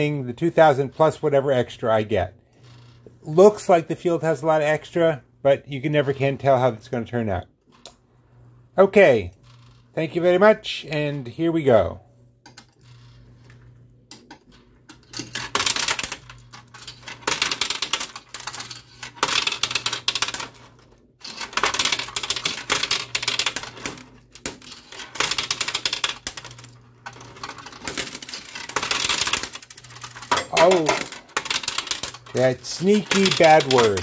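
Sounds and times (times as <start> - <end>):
coins clattering on metal: 14.9 - 34.0.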